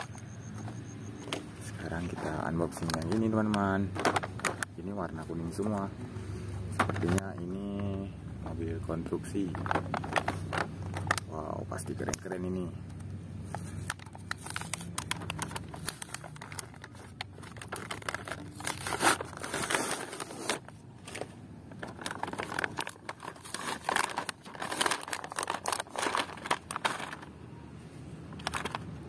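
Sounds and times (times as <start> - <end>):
plastic packaging crinkling: 1.8 - 5.8, 9.1 - 12.2, 13.4 - 27.4, 28.2 - 29.0
card backing tearing: 13.6 - 27.3.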